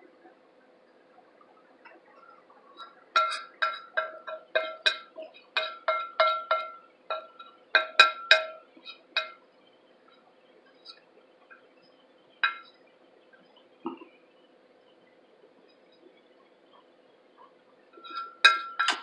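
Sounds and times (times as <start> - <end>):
metal spoon tapping a plate: 3.2 - 8.6, 9.2 - 9.4, 12.4 - 12.7, 18.0 - 19.0.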